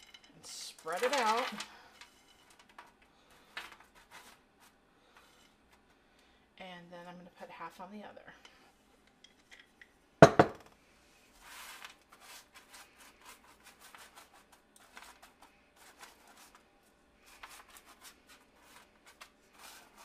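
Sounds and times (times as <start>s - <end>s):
spatula scraping granola on tray: 11.4s - 16.6s, 17.2s - 20.0s.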